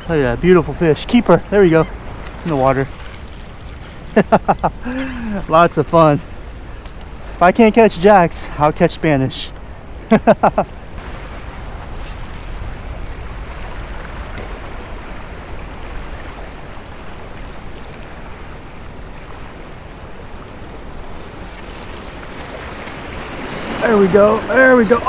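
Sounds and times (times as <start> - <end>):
waves washing against rocks: 21.4 - 25.0.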